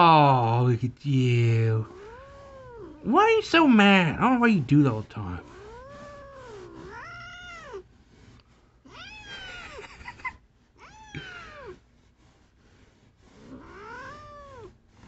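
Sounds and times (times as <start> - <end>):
cat yowling: 1.9 - 3.1, 5.5 - 7.8, 8.9 - 9.8, 10.8 - 11.8, 13.5 - 14.7.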